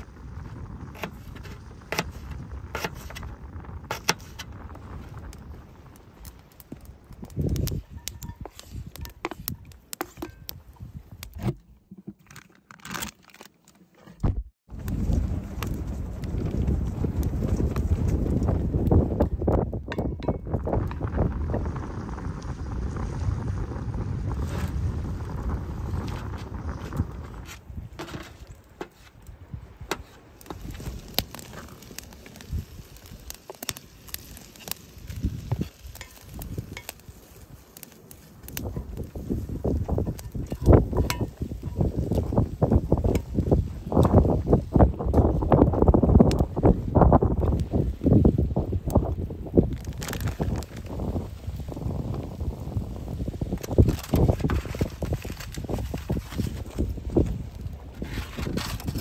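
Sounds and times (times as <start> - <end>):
campfire crackling and popping: 0.0 - 11.5, 14.7 - 59.0
spatula scraping skillet: 7.7 - 10.4
meat frying in skillet: 30.4 - 44.6.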